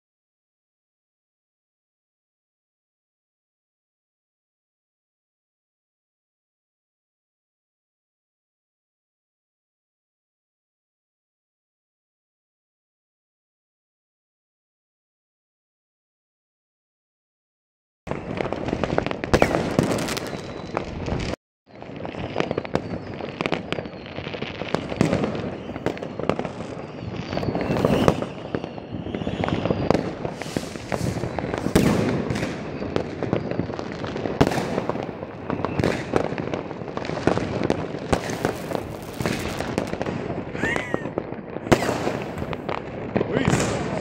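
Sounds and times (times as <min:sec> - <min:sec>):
rocket bangs: 0:18.1 - 0:21.4, 0:27.2 - 0:44.0
firecrackers crackling: 0:18.1 - 0:44.0
rockets whistling: 0:18.1 - 0:44.0.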